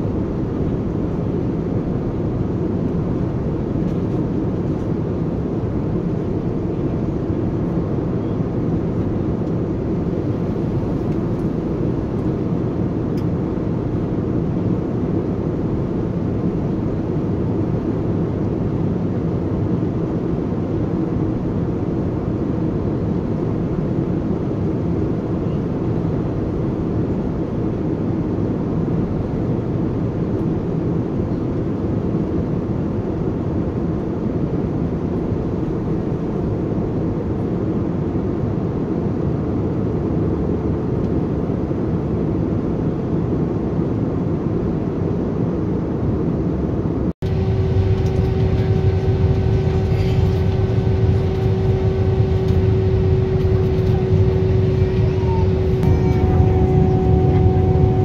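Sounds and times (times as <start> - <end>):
jet engine cabin noise: 0.0 - 58.0
whining engine tone: 47.2 - 58.0.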